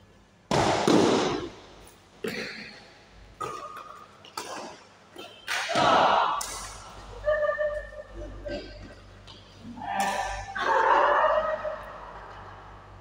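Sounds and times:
rackets hitting shuttlecock: 0.5s - 1.7s, 3.4s - 6.9s.

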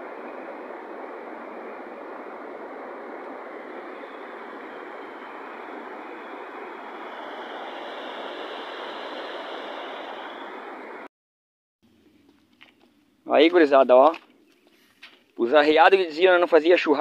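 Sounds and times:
steady rushing noise: 0.0s - 11.1s.

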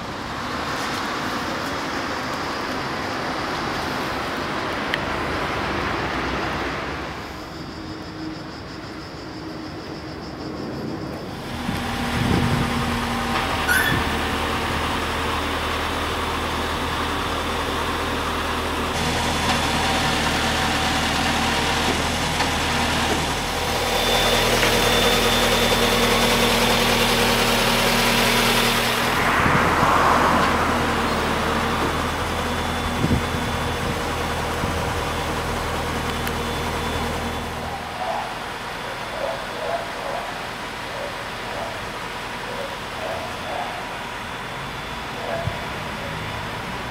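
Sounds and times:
engine humming: 0.0s - 46.9s
outdoor noise: 0.0s - 46.9s.

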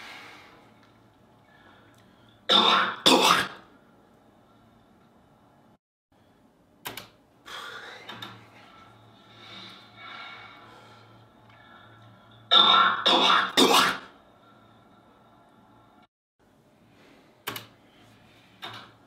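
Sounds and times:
man coughing: 2.5s - 3.6s, 13.1s - 14.1s.

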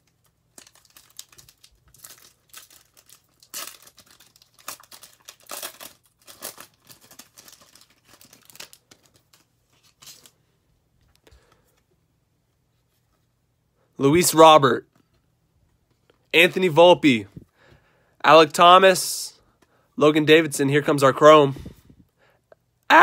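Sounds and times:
wrapper crinkling and tearing: 0.0s - 10.4s.

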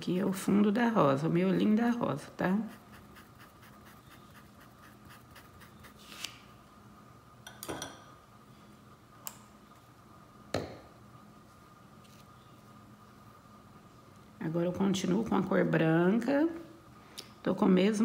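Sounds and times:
faint steady hum: 0.0s - 18.0s
paintbrush scratching on cloth: 2.6s - 6.2s.

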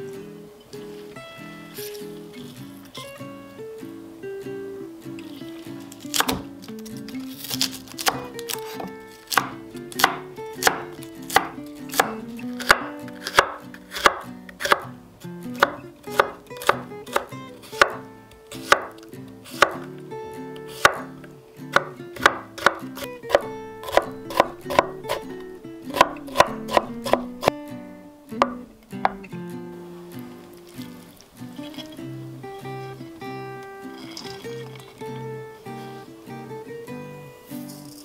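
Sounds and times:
knife chopping on wooden board: 6.1s - 6.4s, 8.8s - 14.8s, 15.6s - 18.0s, 18.6s - 18.9s, 19.6s - 19.9s, 20.8s - 21.1s, 21.7s - 27.5s, 28.4s - 29.2s.

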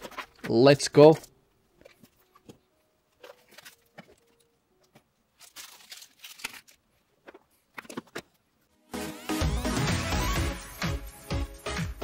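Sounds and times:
packaging rustling: 0.0s - 8.4s.

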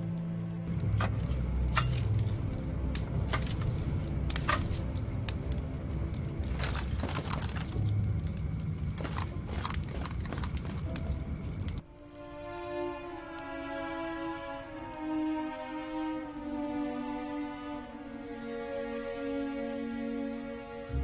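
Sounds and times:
fire rumbling: 0.6s - 12.1s
fire crackling and popping: 0.6s - 14.1s.

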